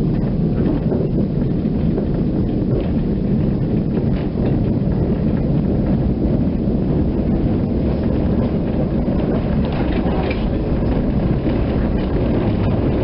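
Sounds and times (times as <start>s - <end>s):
tram wheels rumbling on track: 0.0s - 13.0s
light clicks and rattles: 7.6s - 13.0s.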